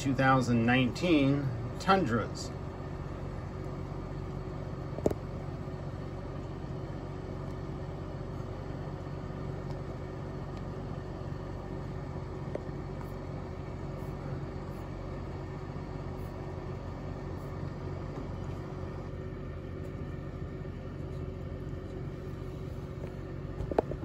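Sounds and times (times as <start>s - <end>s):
low room hum and rumble: 0.0s - 24.0s.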